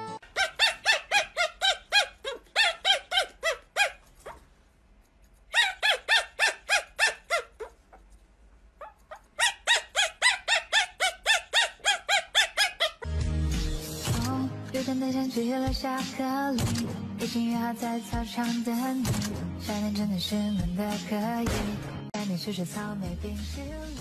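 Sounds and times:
puppy yapping: 0.2s - 4.4s, 5.5s - 8.0s, 8.8s - 13.0s.

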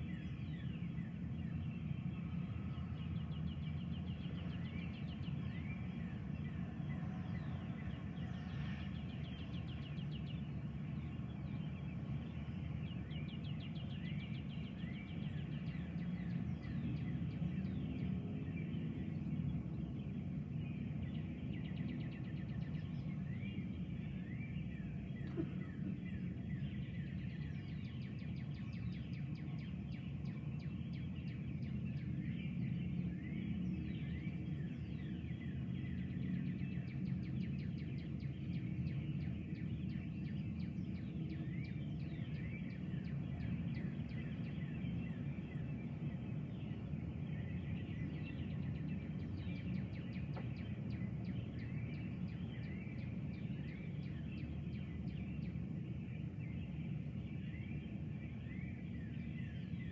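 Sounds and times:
birds singing: 0.0s - 59.9s
low rumbling background: 0.1s - 59.8s.

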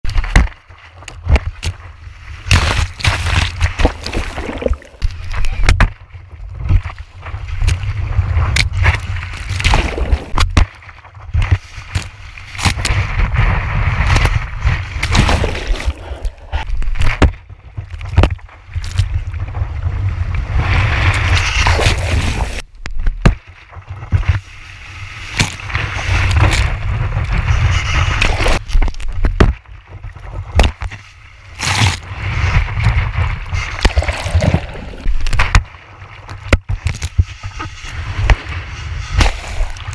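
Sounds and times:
water sloshing and splashing: 2.4s - 5.6s, 14.1s - 19.3s, 33.6s - 37.2s
low rumble of water: 3.2s - 38.7s
wind on camera housing: 15.8s - 39.9s.

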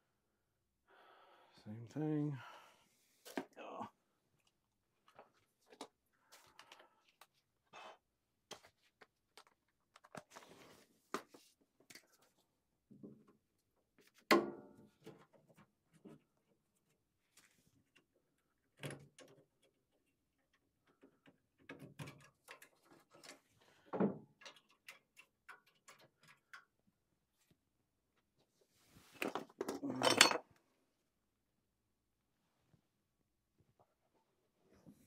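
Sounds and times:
hand tools clicking and tapping: 24.3s - 26.8s.

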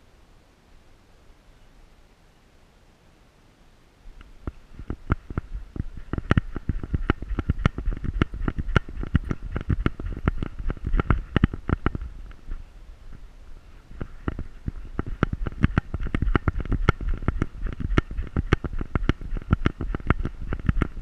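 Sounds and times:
low rumble: 4.3s - 21.0s.

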